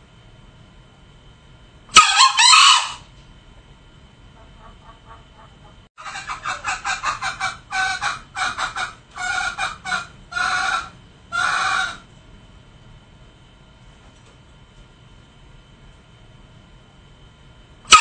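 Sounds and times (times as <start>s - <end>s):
junglefowl calling: 1.9s - 3.1s, 4.4s - 12.1s.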